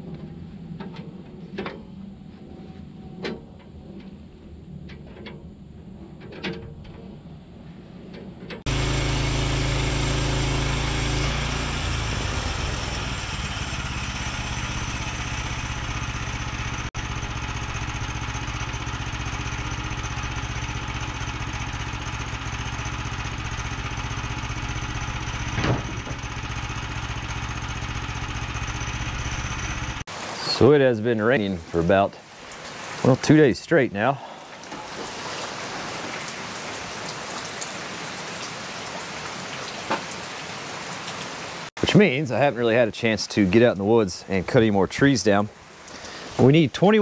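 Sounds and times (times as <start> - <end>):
small gas engine running: 8.6 - 30.1.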